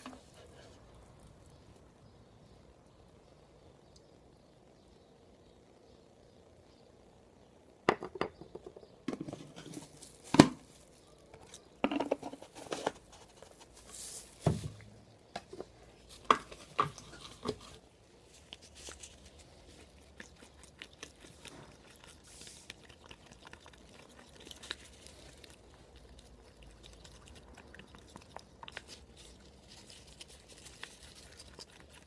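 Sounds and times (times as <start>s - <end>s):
crinkling: 9.2s - 32.0s
rustling hiss: 12.5s - 15.0s.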